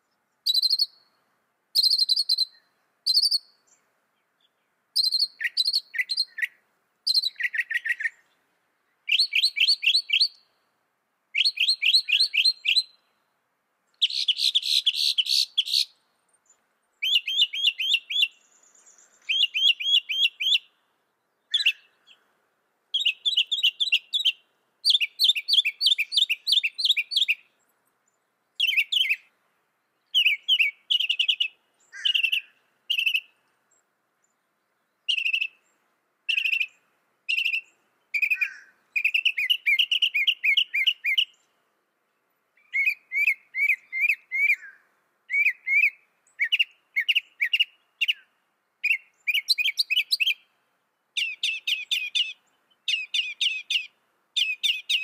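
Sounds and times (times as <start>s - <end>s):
mockingbird singing: 0.4s - 1.0s, 1.8s - 3.5s, 5.0s - 8.3s, 9.0s - 10.4s, 11.4s - 13.0s, 13.9s - 16.0s, 17.0s - 20.7s, 21.4s - 22.2s, 22.9s - 27.5s, 28.6s - 29.3s, 30.0s - 33.4s, 35.0s - 35.7s, 36.3s - 41.5s, 42.6s - 50.5s, 51.2s - 55.0s.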